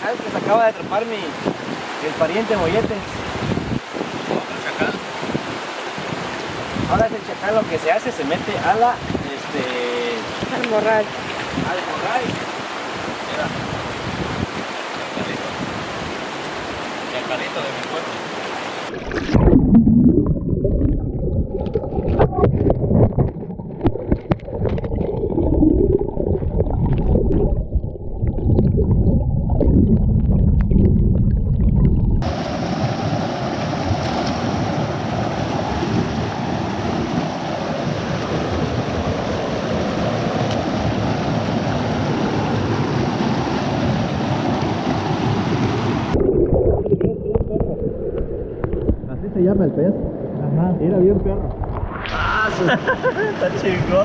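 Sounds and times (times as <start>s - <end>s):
flowing water rushing: 0.0s - 54.0s
muffled underwater gurgling: 18.9s - 32.2s, 46.1s - 52.7s.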